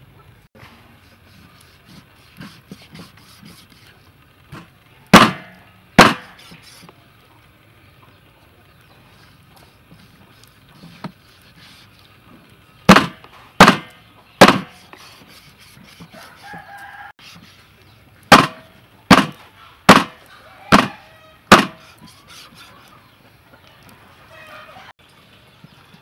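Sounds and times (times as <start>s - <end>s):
cleaver chopping onto wooden board: 5.1s - 6.4s, 12.9s - 14.8s, 18.3s - 21.8s.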